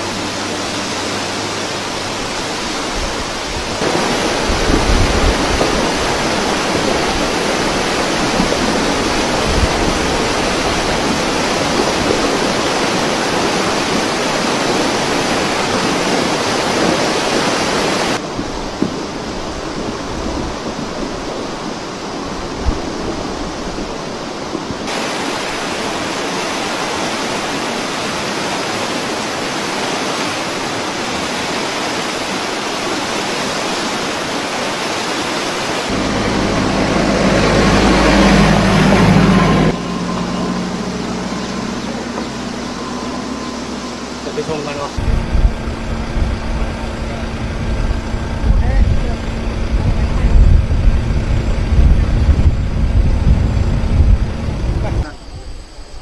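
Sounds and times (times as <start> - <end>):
vehicle engine: 0.0 - 12.1, 35.9 - 55.0
floodwater rushing: 0.0 - 55.3.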